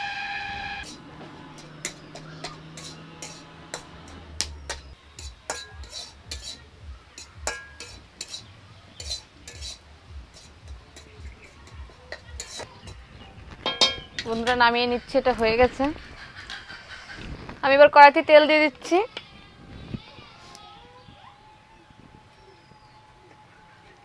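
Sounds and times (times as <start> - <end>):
metal spatula scraping metal pan: 0.0 - 6.6, 7.2 - 13.0.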